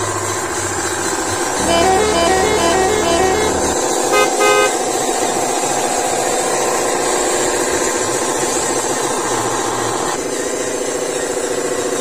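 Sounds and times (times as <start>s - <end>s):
truck engine running: 0.0s - 12.0s
model truck horn tooting: 1.6s - 5.0s.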